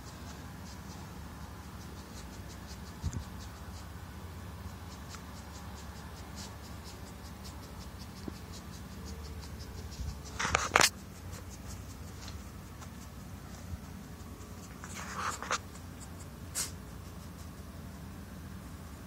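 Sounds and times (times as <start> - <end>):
faint fast ticking: 0.0 - 14.8
low background noise: 0.0 - 19.0
scratchy rustle in grass: 6.2 - 17.2.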